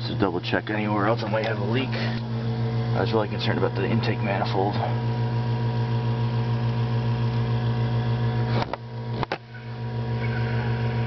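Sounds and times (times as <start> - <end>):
compressor pump humming: 0.0 - 11.0.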